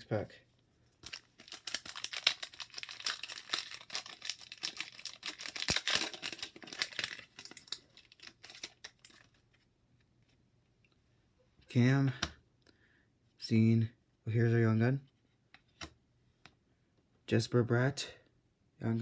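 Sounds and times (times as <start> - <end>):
foil wrapper crinkling and tearing: 1.0 - 9.4.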